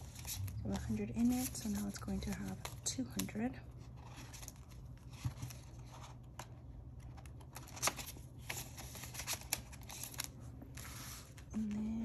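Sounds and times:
paper banknotes rustling: 0.0s - 6.2s, 7.0s - 12.0s.

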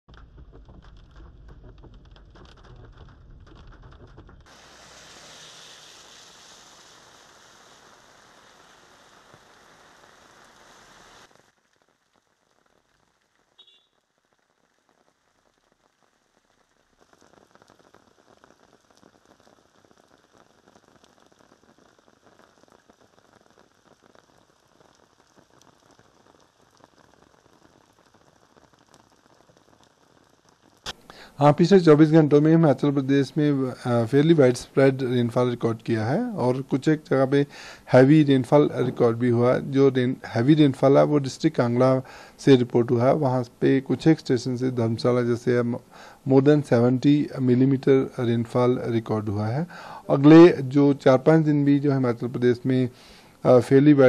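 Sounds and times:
heavy rain hissing and pattering: 0.0s - 54.0s
low rumble: 0.1s - 4.5s.

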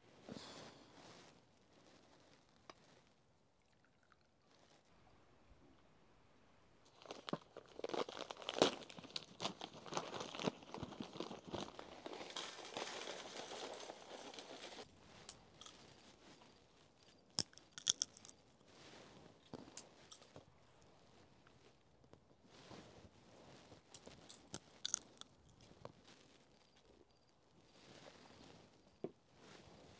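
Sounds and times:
plastic bag crinkling: 6.9s - 14.9s, 17.3s - 18.4s, 24.0s - 25.7s
seed shells cracking: 17.3s - 18.4s, 24.0s - 25.7s.

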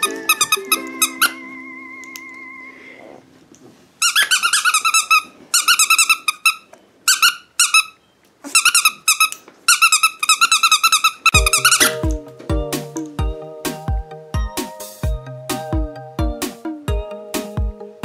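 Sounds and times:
squeaky dog toy squeaking: 0.0s - 2.4s, 4.0s - 12.2s
held musical tone: 0.0s - 3.4s, 11.4s - 18.0s.

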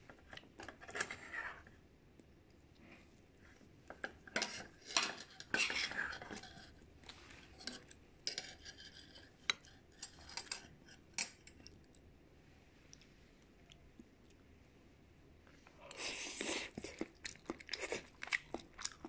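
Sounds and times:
utensils clinking against a dish: 4.3s - 6.7s, 7.6s - 11.5s.

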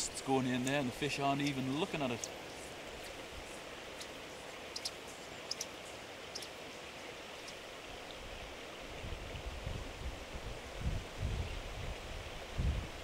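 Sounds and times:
wind rumble on microphone: 8.1s - 13.0s.

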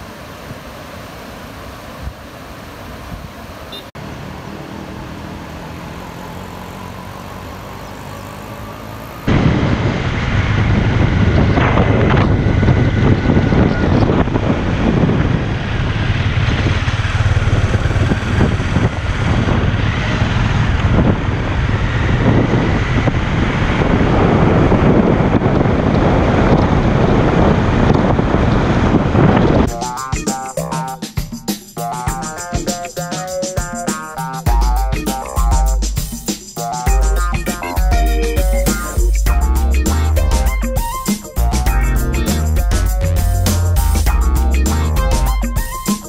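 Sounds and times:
motorcycle engine running: 6.0s - 27.8s, 41.4s - 45.6s
wind buffeting on microphone: 9.2s - 29.8s.

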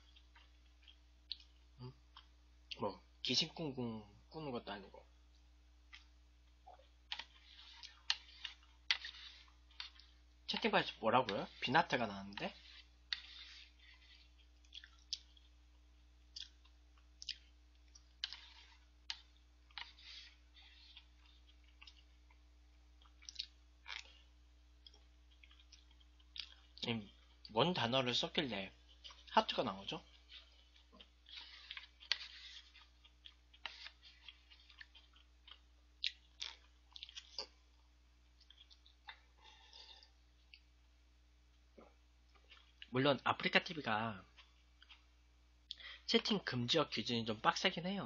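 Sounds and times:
faint chewing of noodles: 0.0s - 3.2s, 5.2s - 43.0s, 44.2s - 46.4s
faint steady hum: 0.0s - 48.0s
mouth clicks and smacks: 0.2s - 2.8s, 16.3s - 19.9s, 23.0s - 24.2s.

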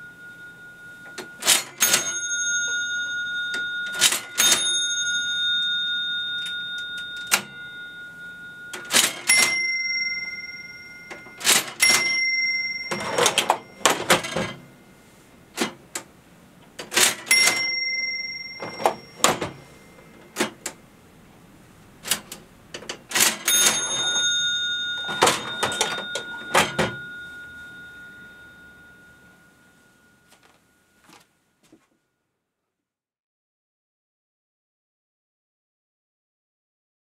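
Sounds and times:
cash register bell ringing: 0.0s - 16.1s, 16.8s - 20.8s, 22.0s - 31.2s
cash register mechanical clatter: 1.0s - 7.7s, 8.7s - 14.7s, 15.5s - 16.1s, 16.8s - 20.8s, 22.0s - 28.2s.

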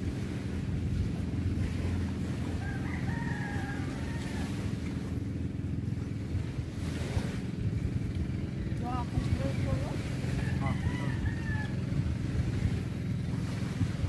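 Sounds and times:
surf: 0.0s - 14.0s
wind: 0.0s - 14.0s
rooster crowing: 2.5s - 4.8s, 10.3s - 12.1s.

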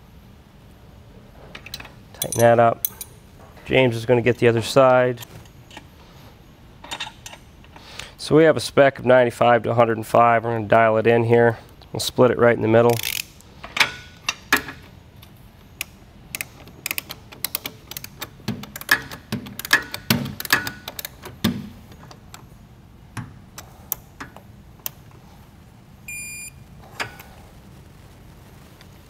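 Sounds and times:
wrench clicking on metal: 12.9s - 14.8s, 15.8s - 22.4s
short electronic beep: 26.1s - 26.6s.

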